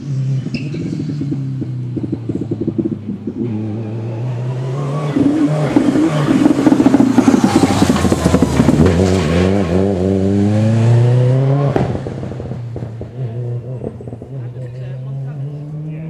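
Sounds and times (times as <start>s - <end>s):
rally car engine accelerating: 0.0s - 16.0s.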